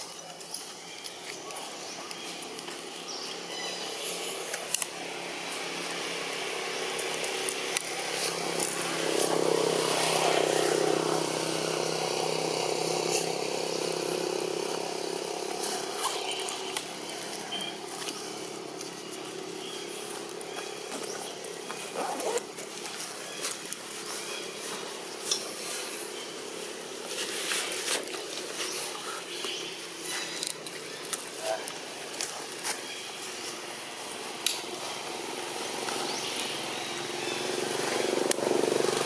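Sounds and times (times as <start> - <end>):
motor vehicle engine passing: 5.0 - 20.8, 34.2 - 39.0.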